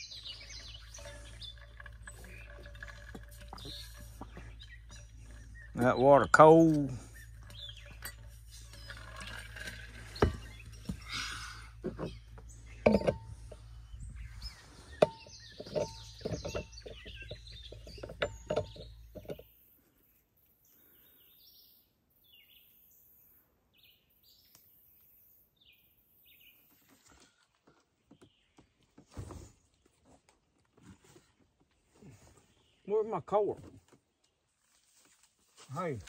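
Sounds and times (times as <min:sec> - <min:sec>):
low steady hum: 0:00.0 - 0:19.6
knocks and clinks of water jug: 0:00.3 - 0:11.1, 0:11.8 - 0:13.7, 0:15.0 - 0:19.4.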